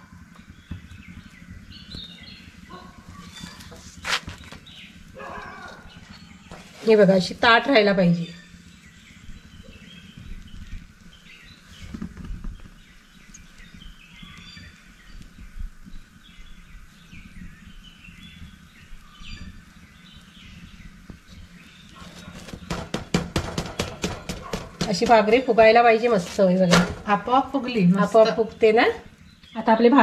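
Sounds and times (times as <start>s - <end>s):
small birds chirping: 0.0s - 30.0s
steady low hum: 0.0s - 30.0s
hand patting flatbread: 3.1s - 4.7s, 21.9s - 27.0s.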